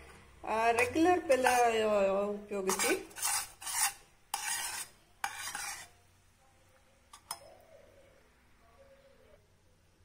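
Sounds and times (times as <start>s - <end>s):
spatula scraping a steel pan: 0.7s - 2.0s, 2.6s - 6.0s.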